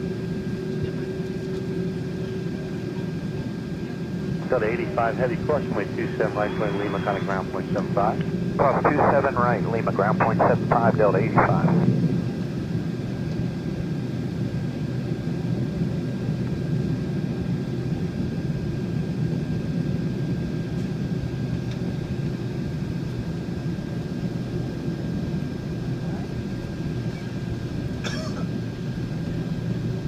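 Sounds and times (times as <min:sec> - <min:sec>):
idling jet engines rumbling: 0:00.0 - 0:30.0
thin steady whine: 0:04.3 - 0:12.2.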